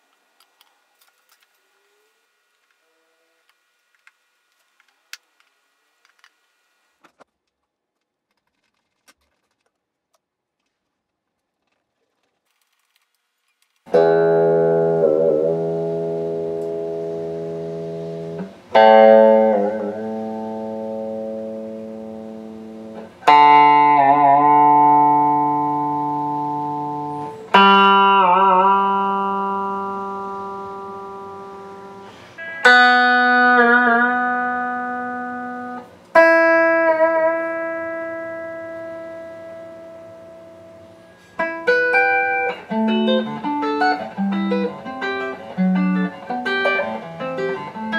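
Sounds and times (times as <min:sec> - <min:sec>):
electric guitar notes plucked: 0:13.9 - 0:47.9.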